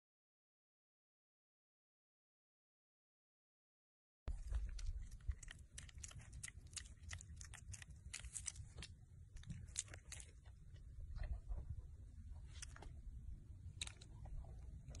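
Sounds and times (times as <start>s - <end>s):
faint low rumble: 4.3s - 15.0s
piglet chewing and smacking: 4.3s - 15.0s.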